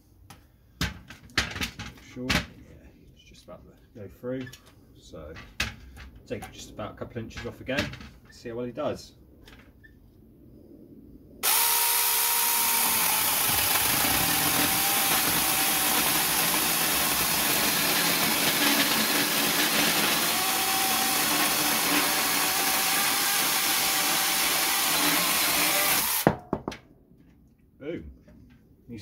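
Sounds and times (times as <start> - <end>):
chain rasping through wood: 11.4 - 26.2
chainsaw motor whine: 11.4 - 26.2.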